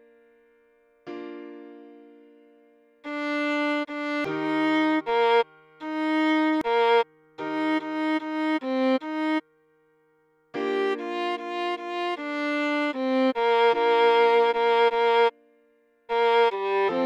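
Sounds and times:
viola bowed melody: 3.0s - 9.4s, 10.6s - 15.4s, 16.1s - 17.0s.

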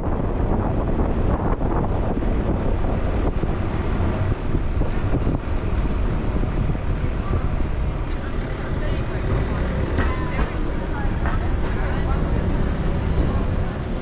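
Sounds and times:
vehicle road and engine rumble: 0.0s - 14.0s
wind on microphone: 0.0s - 14.0s.

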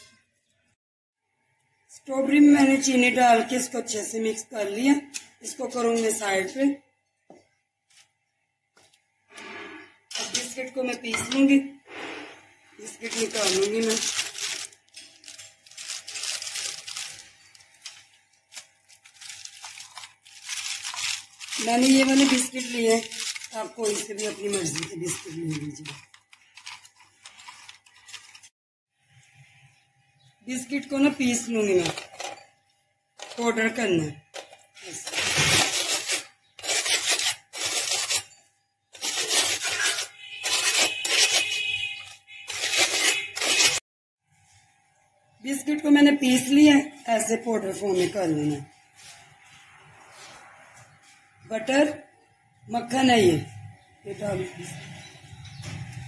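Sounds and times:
plastic packets crinkling: 12.8s - 28.5s, 34.9s - 38.4s, 39.0s - 43.8s
biscuits crushed under bowl: 12.9s - 28.5s.

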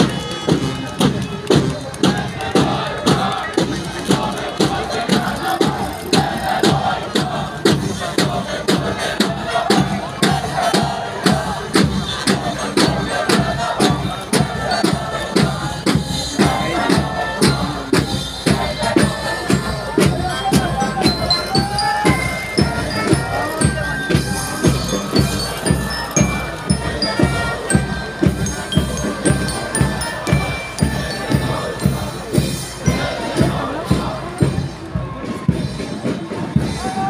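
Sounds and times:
brass instruments: 0.0s - 37.0s
marching band playing: 0.0s - 37.0s
steady drum beat: 0.0s - 37.0s.

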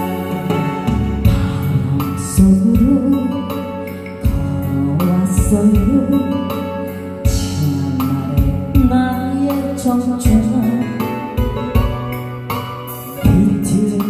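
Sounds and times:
drum hits: 0.0s - 3.0s
karaoke backing track: 0.0s - 14.0s.

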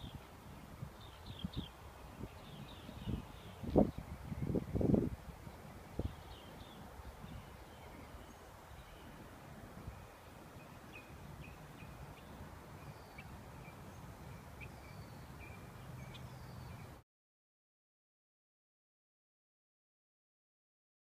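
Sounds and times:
birds chirping and whistling: 1.0s - 4.9s, 10.0s - 16.9s.

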